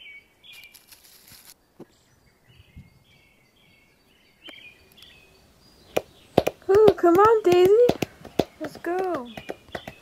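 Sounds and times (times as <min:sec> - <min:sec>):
small bird chirping: 0:00.0 - 0:10.0
soft taps: 0:06.0 - 0:10.0.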